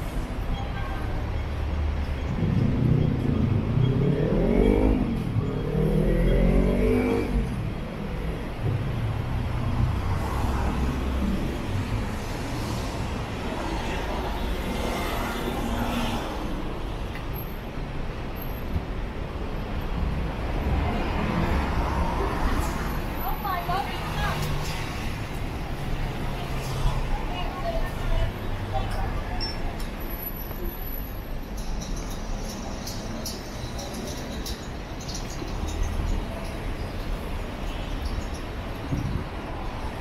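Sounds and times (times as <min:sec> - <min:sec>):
traffic rumble: 0:00.0 - 0:40.0.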